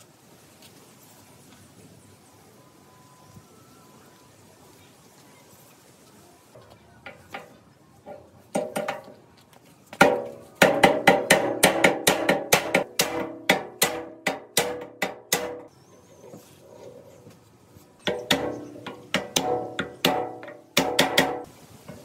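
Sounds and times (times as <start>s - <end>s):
hammer striking wooden block: 10.0s - 15.7s, 18.1s - 21.5s.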